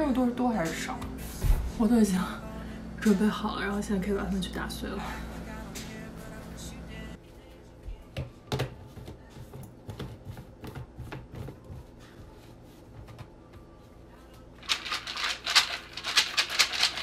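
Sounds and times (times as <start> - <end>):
nuts rattling in cup: 14.6 - 17.0.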